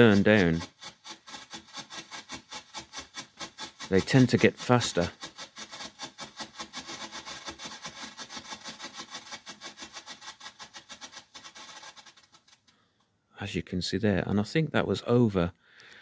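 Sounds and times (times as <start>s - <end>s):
firework strobe pulsing pops: 0.0s - 12.5s.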